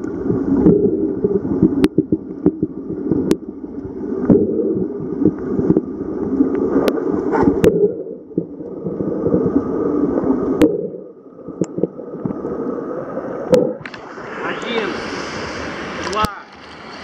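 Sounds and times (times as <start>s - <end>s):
muffled underwater rumble: 0.0s - 16.0s
sharp underwater clicks: 1.7s - 4.4s, 11.5s - 12.4s.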